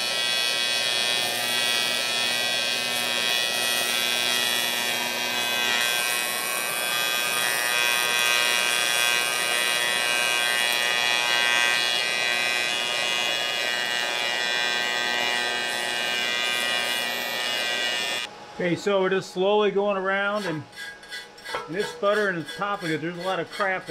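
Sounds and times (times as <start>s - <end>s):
welding arc buzzing and sputtering: 0.0s - 18.3s.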